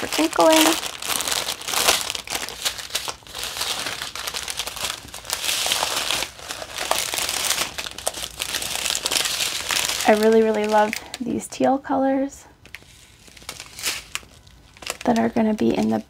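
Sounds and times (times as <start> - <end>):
plastic bags crinkling: 0.0 - 11.7, 12.6 - 16.0.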